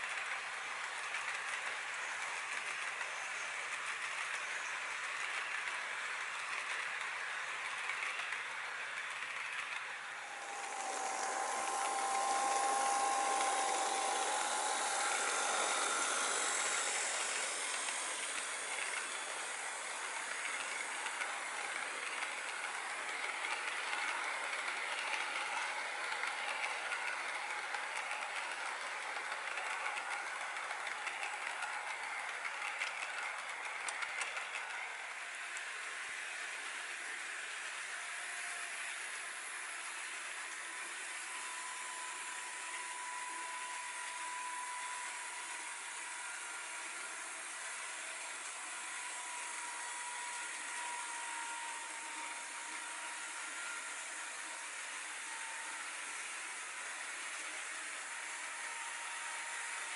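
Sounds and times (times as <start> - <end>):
model train wheels rattling on rails: 0.0 - 59.9
faint steady whine: 9.4 - 57.0.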